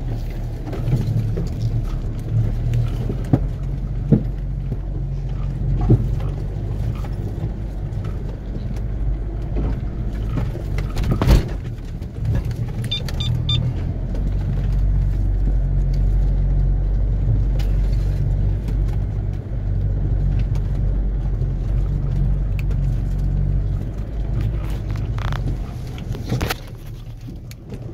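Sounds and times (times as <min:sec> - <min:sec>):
car engine drone from inside cabin: 0:00.0 - 0:27.9
light clicks and rattles: 0:14.0 - 0:27.9.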